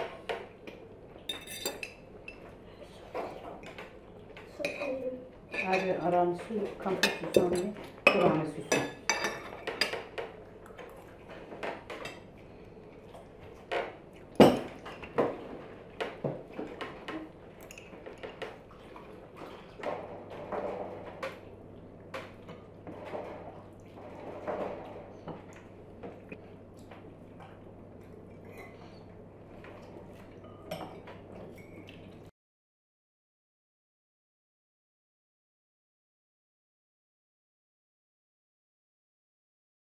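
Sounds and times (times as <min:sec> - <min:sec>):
cutlery clinking on plates: 0:01.3 - 0:02.5, 0:06.9 - 0:10.4, 0:13.8 - 0:15.4.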